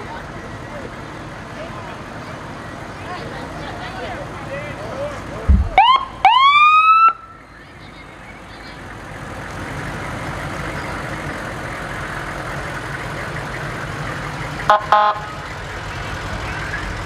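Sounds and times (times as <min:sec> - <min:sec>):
vehicle engine and tyres passing: 0:00.0 - 0:17.0
vehicle horn blasts: 0:14.7 - 0:15.4.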